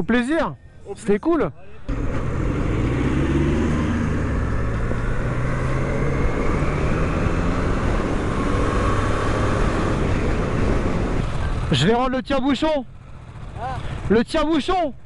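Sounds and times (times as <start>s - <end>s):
motorcycle engine running: 3.8s - 15.0s
wind noise on microphone: 4.4s - 11.7s.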